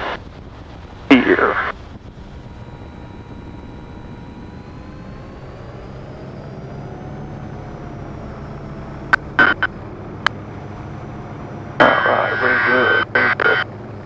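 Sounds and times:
helicopter rotor and turbine drone: 0.0 - 14.0
rising whine: 0.0 - 14.0.

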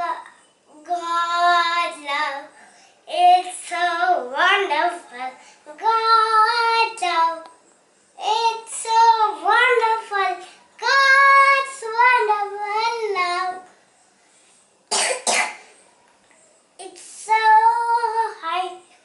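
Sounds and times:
little girl singing: 0.0 - 7.6, 8.2 - 13.7, 16.8 - 18.9
double cough: 14.9 - 15.7.

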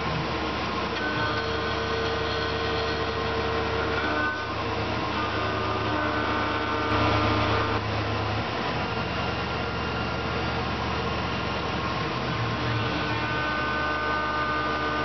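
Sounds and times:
cnc mill humming and whining: 0.0 - 15.0.

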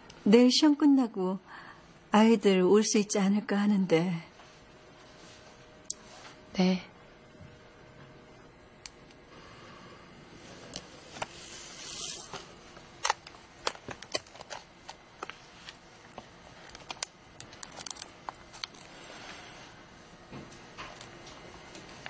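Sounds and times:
album sliding from shelf: 11.1 - 12.5.

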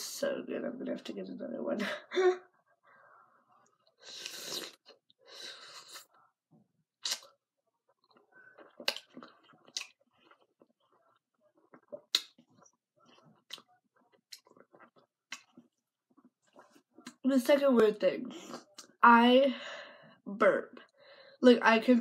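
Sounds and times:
person biting food: 7.0 - 7.4, 8.6 - 10.4
chewing clicks and smacks: 7.0 - 10.9, 11.6 - 17.2.

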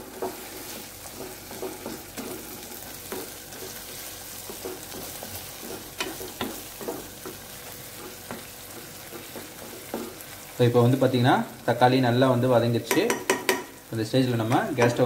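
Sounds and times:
spatula scraping pan: 0.0 - 10.4
vegetables sizzling in oil: 0.0 - 15.0.

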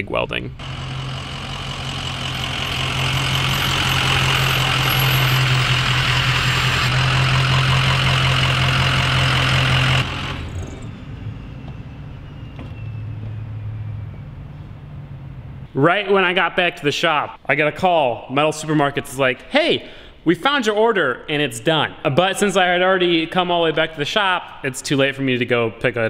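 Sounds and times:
low engine idle: 0.6 - 12.8
bus diesel engine passing: 0.6 - 15.7.

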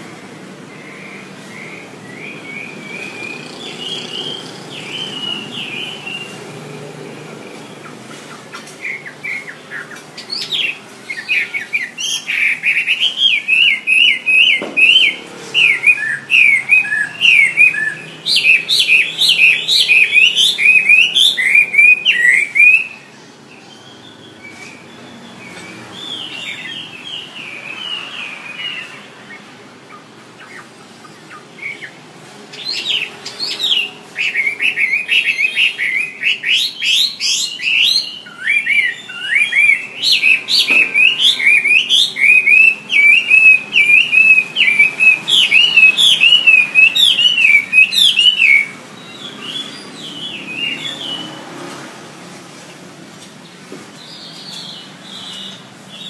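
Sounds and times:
songbird singing: 0.0 - 51.8, 52.6 - 56.0.

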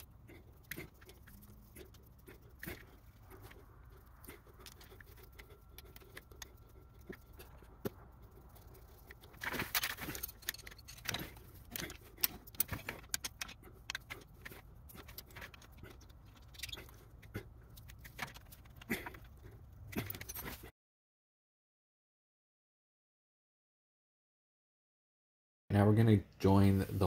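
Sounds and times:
metal parts clinking on concrete: 9.2 - 16.8.

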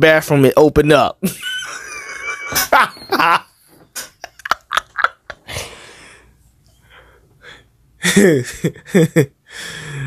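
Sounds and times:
person gasping breath: 5.5 - 7.7, 9.5 - 10.0.

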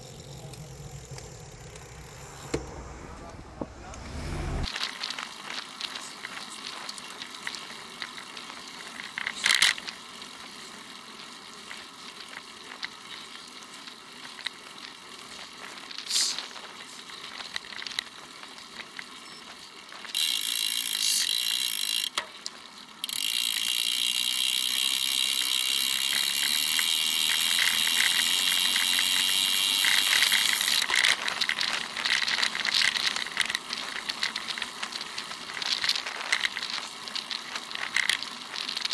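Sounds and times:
bicycle rattling and clicking: 0.0 - 2.4, 4.6 - 38.9
freewheel buzz: 0.0 - 38.9.

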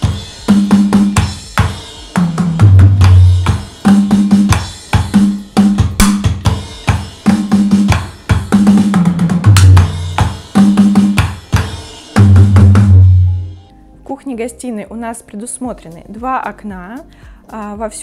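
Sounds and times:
electronic drum beat: 0.0 - 13.6.

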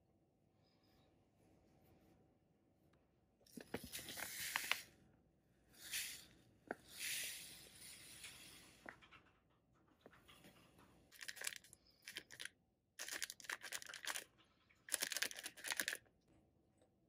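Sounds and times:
sugar pouring with soft hiss: 3.8 - 4.9, 5.8 - 8.8
plastic bag crinkling: 11.1 - 16.0.

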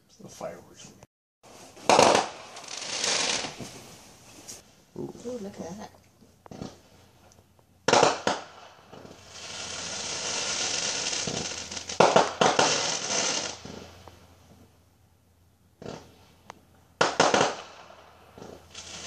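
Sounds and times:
fireworks bangs: 1.5 - 4.6, 6.5 - 7.2, 7.8 - 14.7, 15.8 - 16.4, 17.0 - 19.0
fireworks crackling hiss: 1.5 - 5.9, 7.8 - 14.7, 17.0 - 19.0.

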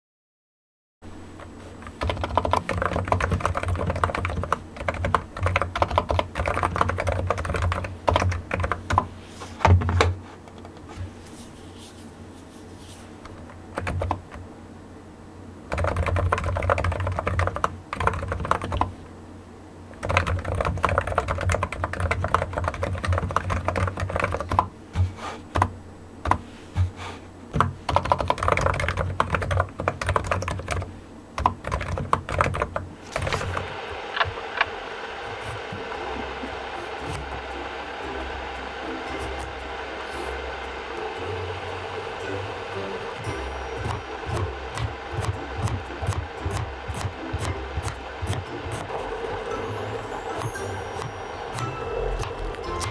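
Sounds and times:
computer keyboard typing: 1.8 - 9.1, 13.7 - 14.4, 15.7 - 18.9, 20.0 - 24.7, 27.6 - 34.7, 43.2 - 48.9.

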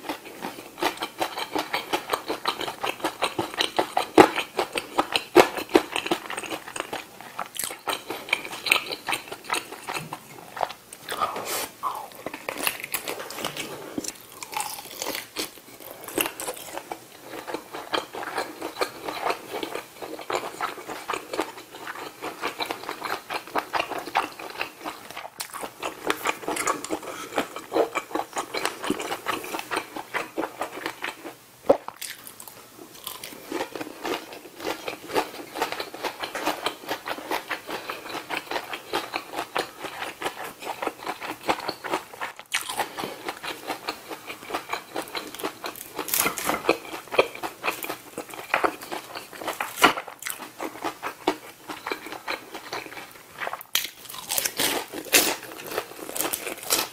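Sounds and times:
biting and chewing food: 0.0 - 56.9.

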